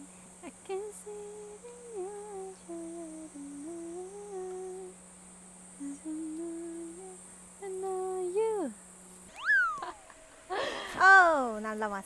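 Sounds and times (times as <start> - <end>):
woman humming: 0.0 - 5.0, 5.8 - 8.8.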